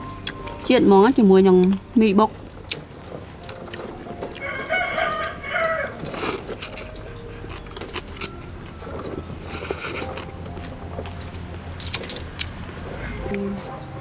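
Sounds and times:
rooster crowing: 0:04.4 - 0:06.0.

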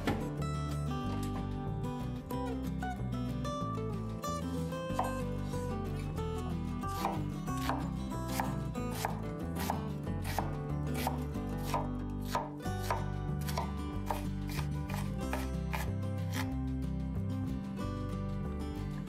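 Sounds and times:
background music: 0:00.0 - 0:19.0
knife chopping on cutting board: 0:07.0 - 0:16.5.

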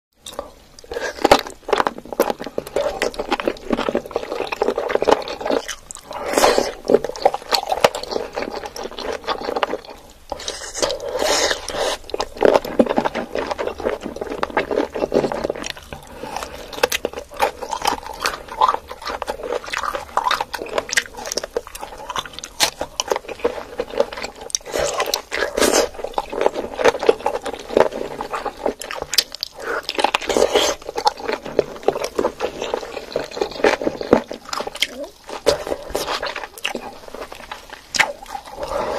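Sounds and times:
chewing and sucking chicken feet: 0:00.2 - 0:38.9.

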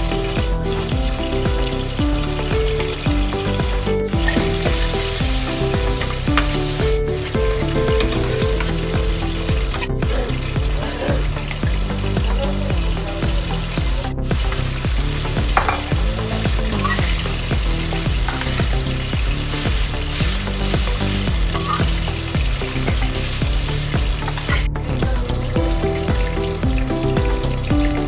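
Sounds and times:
music: 0:00.0 - 0:28.0
rice sizzling in a pan: 0:02.8 - 0:07.0, 0:12.8 - 0:24.6
metal spatula scraping a pan: 0:21.6 - 0:22.0.

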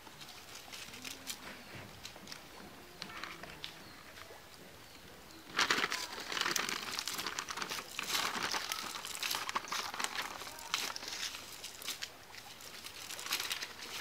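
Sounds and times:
net rustling on dry leaves: 0:00.0 - 0:01.7, 0:05.4 - 0:14.0.

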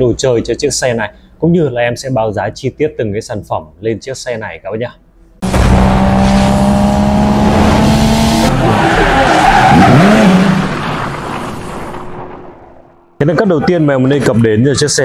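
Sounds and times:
car engine at high revs: 0:05.4 - 0:12.0
tyres skidding and squealing: 0:05.4 - 0:13.2.

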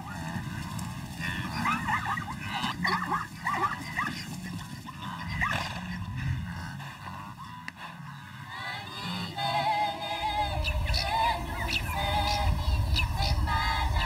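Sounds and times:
animal yipping calls: 0:01.4 - 0:06.0
low background rumble: 0:08.4 - 0:14.0.

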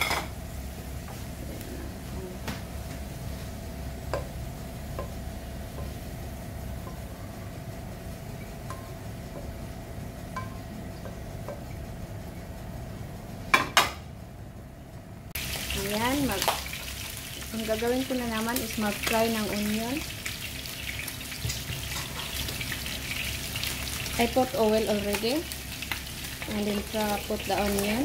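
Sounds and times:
faint hum: 0:00.0 - 0:28.0
pan knocking on stove grate: 0:21.4 - 0:22.3.

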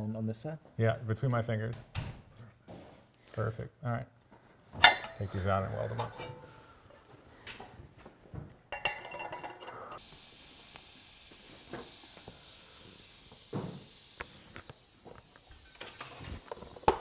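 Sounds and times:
clicks and knocks of pipe handling: 0:04.3 - 0:05.2, 0:05.9 - 0:06.6, 0:08.7 - 0:09.8
welding arc hissing: 0:10.0 - 0:17.0.

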